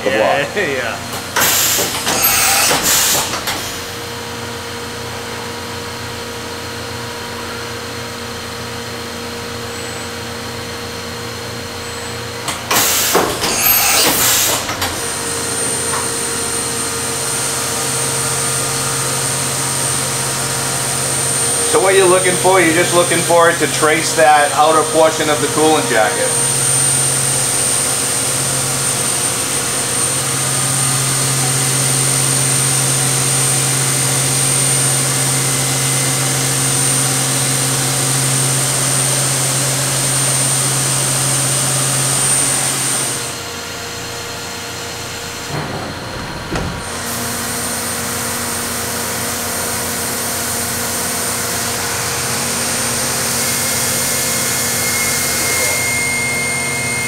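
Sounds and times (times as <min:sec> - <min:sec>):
milling machine spindle whine: 0:00.0 - 0:05.1, 0:06.7 - 0:57.0
machine hum: 0:09.4 - 0:57.0.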